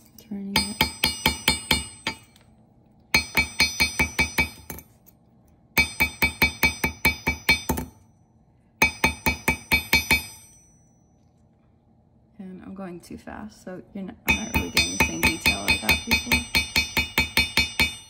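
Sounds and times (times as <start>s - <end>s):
hammer ringing on metal disc: 0.4s - 2.4s, 3.1s - 5.0s, 5.7s - 11.2s, 14.3s - 18.0s.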